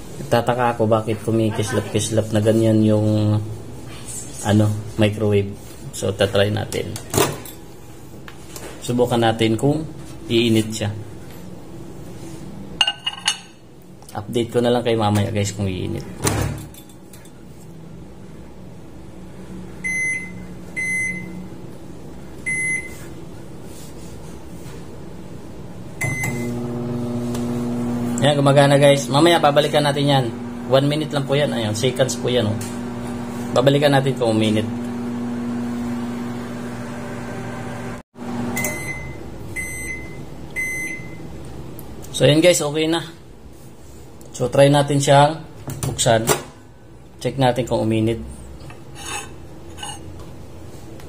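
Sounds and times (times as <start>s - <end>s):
microwave oven humming: 18.2s - 23.4s, 25.3s - 41.5s
microwave keypad beeps: 19.8s - 21.4s, 22.5s - 23.0s, 26.0s - 26.6s, 38.6s - 41.2s.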